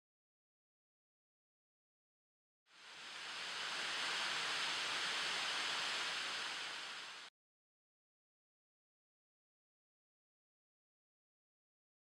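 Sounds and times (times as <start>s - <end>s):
rushing hiss: 2.8s - 7.3s.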